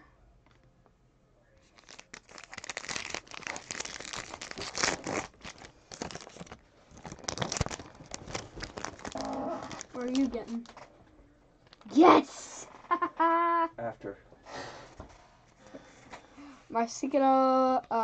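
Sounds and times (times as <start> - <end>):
wrapper crinkling and tearing: 1.6 - 10.8.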